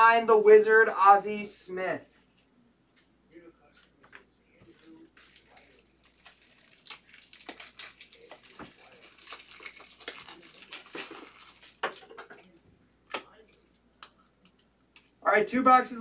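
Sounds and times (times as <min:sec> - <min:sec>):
plastic packaging crinkling: 0:04.7 - 0:12.4.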